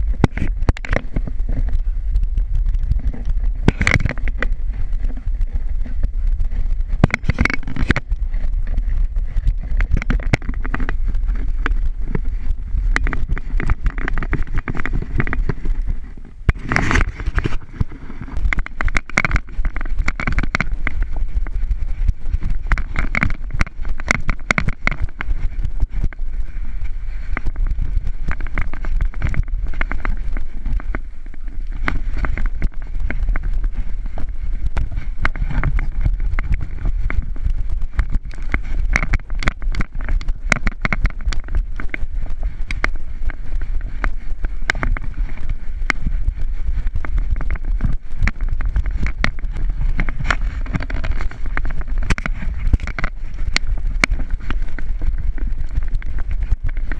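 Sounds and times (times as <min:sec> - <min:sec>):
muffled wind buffeting: 0:00.0 - 0:56.9
camera knocks and bumps: 0:03.6 - 0:05.2, 0:07.0 - 0:08.2, 0:09.7 - 0:12.3, 0:22.7 - 0:25.3.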